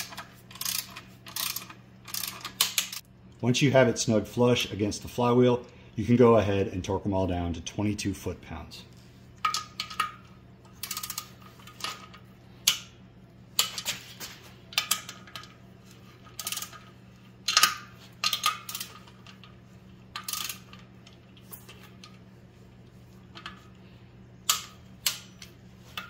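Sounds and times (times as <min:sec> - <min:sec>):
torque wrench ratchet clicking: 0:00.0 - 0:03.0, 0:10.8 - 0:11.2, 0:16.4 - 0:16.8, 0:20.2 - 0:20.8
faint steady hum: 0:00.0 - 0:26.0.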